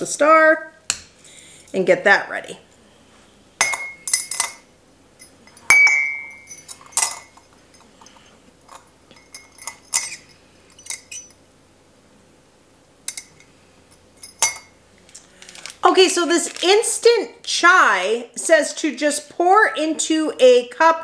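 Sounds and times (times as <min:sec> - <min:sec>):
metal clinking against ceramic mugs: 0:03.6 - 0:11.4, 0:13.1 - 0:14.7.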